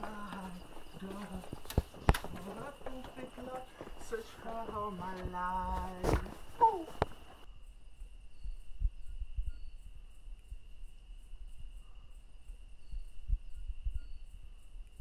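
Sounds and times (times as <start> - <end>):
soft low thumps: 0.0 - 10.7
insects chirping: 0.0 - 15.0.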